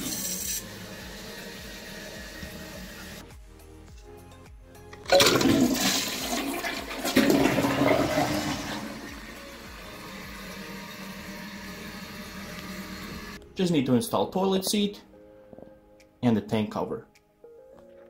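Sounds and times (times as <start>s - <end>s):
toilet flushing: 0.0s - 3.2s, 5.1s - 13.4s.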